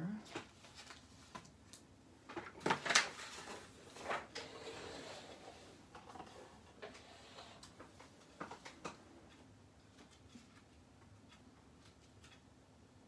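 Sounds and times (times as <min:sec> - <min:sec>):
paper rustling: 0:00.3 - 0:01.6, 0:02.3 - 0:07.0.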